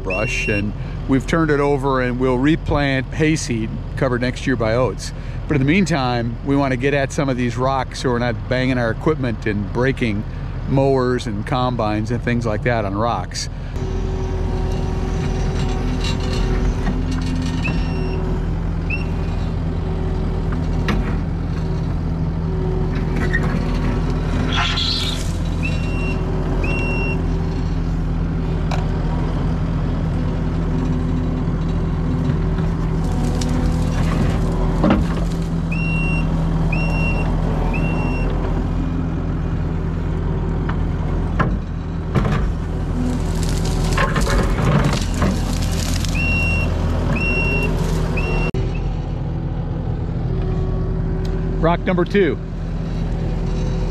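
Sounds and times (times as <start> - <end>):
diesel engine under load: 0.0 - 53.9
backup alarm beeps: 0.1 - 0.7
bucket scraping rock and soil: 42.9 - 46.7.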